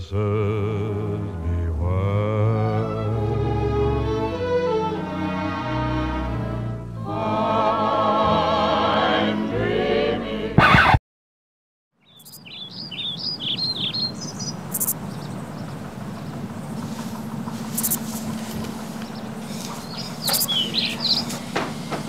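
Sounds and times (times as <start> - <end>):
music: 0.2 - 10.6
birds chirping: 12.0 - 22.0
steady low hum: 12.7 - 22.0
sharp clicks: 14.7 - 15.0, 17.8 - 18.0, 20.2 - 20.6.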